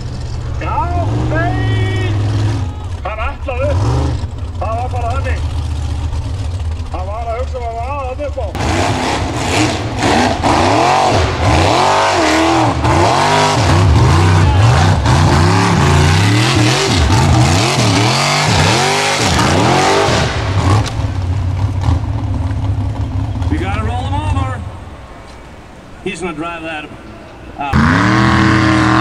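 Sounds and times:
buggy engine revving hard: 0:00.0 - 0:07.4, 0:08.5 - 0:24.4, 0:27.6 - 0:29.0
buggy knocking as it rolls: 0:20.9 - 0:24.2.

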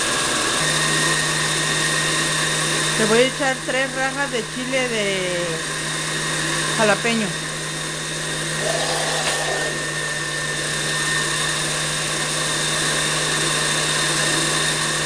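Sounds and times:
blender running: 0:00.0 - 0:15.0.

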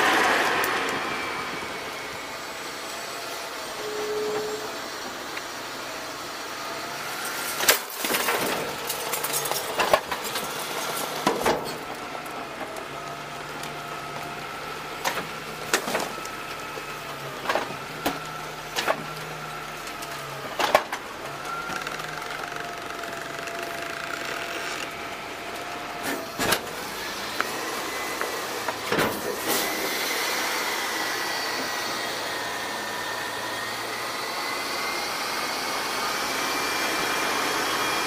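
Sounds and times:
hydraulic whine: 0:00.0 - 0:38.0
clatter and thumps of carts: 0:07.3 - 0:12.8, 0:19.9 - 0:24.9.

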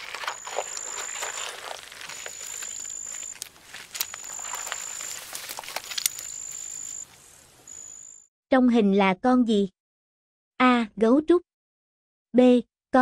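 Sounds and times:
insect buzzing call: 0:00.0 - 0:08.2
rustling hiss: 0:00.3 - 0:08.0.

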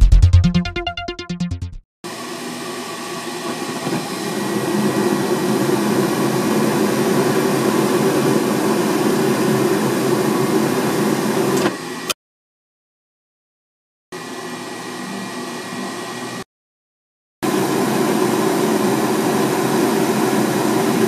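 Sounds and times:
gas furnace fan and burners rushing: 0:17.5 - 0:21.0.

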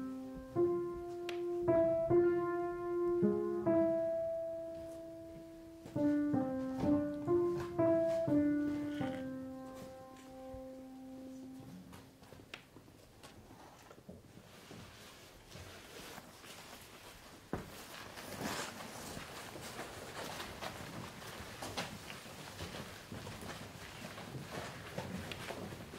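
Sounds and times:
slow piano playing: 0:00.0 - 0:12.2
faint knocks and shuffles: 0:00.0 - 0:25.9.

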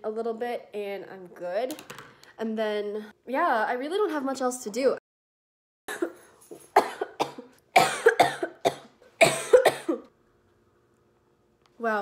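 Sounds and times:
woman coughing hard: 0:05.9 - 0:10.1.

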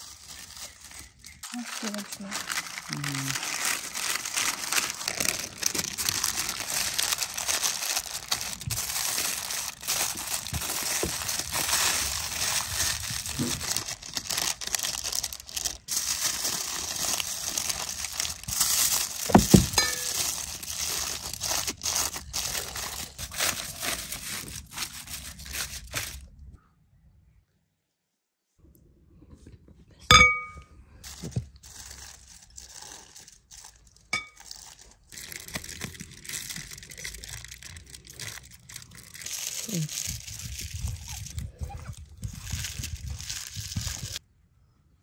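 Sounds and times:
aluminium foil crinkling: 0:00.0 - 0:26.5, 0:31.0 - 0:44.2.

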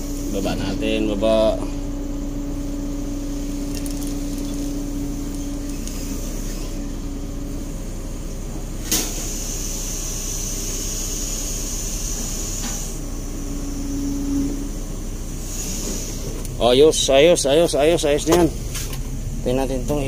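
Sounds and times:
excavator engine running: 0:00.0 - 0:20.0
thin high whine: 0:12.2 - 0:14.8.

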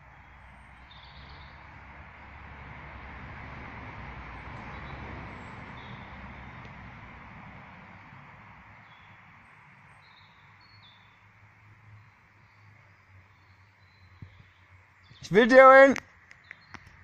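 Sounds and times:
road vehicle passing: 0:00.0 - 0:16.2
bird chirps: 0:00.2 - 0:01.6, 0:09.9 - 0:11.2, 0:16.4 - 0:17.0.

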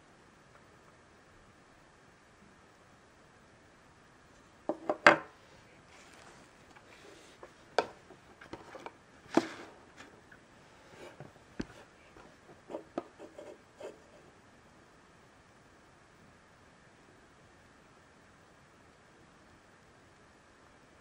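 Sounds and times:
light rubbing and handling: 0:04.4 - 0:14.2
figurine knocking on wooden table: 0:04.7 - 0:05.3.

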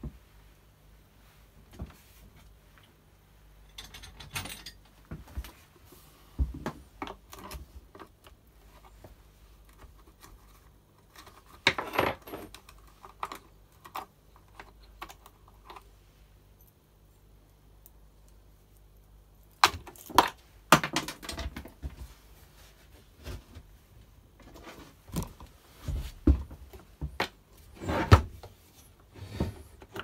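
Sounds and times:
small parts and tools rattling: 0:03.6 - 0:05.4, 0:09.6 - 0:15.9.

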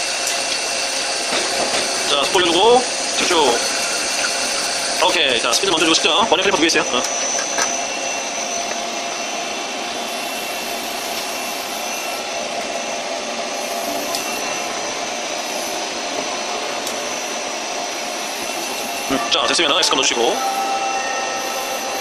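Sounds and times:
faint high tones: 0:19.1 - 0:22.0.

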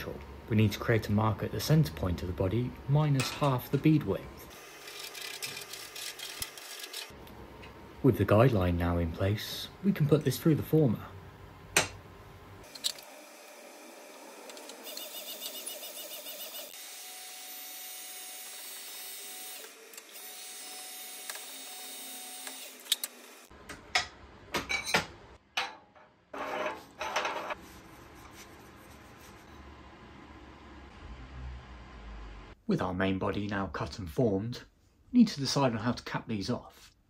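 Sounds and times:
bead roller motor running: 0:04.5 - 0:07.1, 0:12.6 - 0:16.8.

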